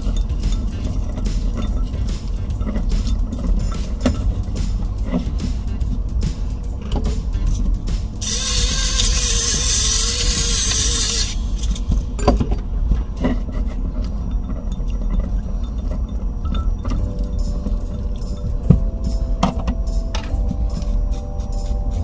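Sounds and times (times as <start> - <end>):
tongs clinking in glass bowl: 0.0 - 5.2
pepper grinder grinding: 0.0 - 12.2.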